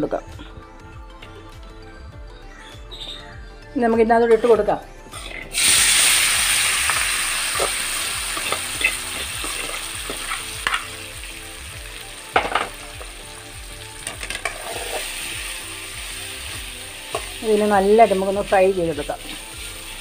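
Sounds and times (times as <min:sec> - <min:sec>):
nuts sizzling in hot oil: 0:05.2 - 0:20.0.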